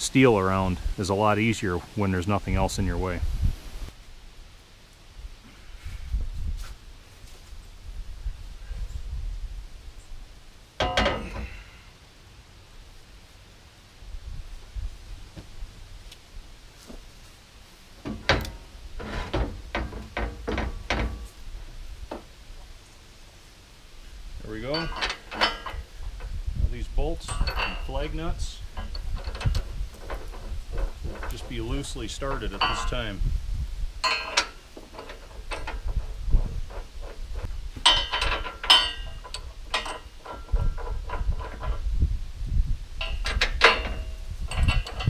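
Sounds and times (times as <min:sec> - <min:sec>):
metal hardware clinking: 0:10.8 - 0:11.5, 0:24.6 - 0:33.2, 0:34.0 - 0:41.8, 0:43.0 - 0:45.0
metal knocks: 0:10.8 - 0:11.5, 0:18.0 - 0:21.3, 0:24.6 - 0:26.4, 0:27.2 - 0:33.1, 0:34.0 - 0:41.9, 0:43.0 - 0:45.0
steel frame clanking: 0:10.8 - 0:11.7, 0:18.0 - 0:21.4, 0:24.6 - 0:33.2, 0:34.0 - 0:41.9, 0:43.0 - 0:45.0.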